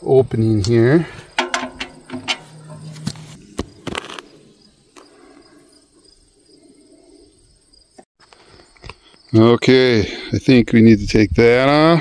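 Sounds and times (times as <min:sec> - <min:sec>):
crickets chirping: 0:00.1 - 0:10.3
metal clicks and knocks: 0:01.4 - 0:03.4.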